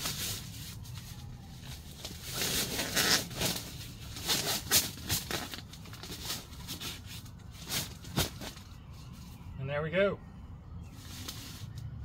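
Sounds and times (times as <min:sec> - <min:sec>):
nylon bag rustling and crinkling: 0:01.6 - 0:08.5.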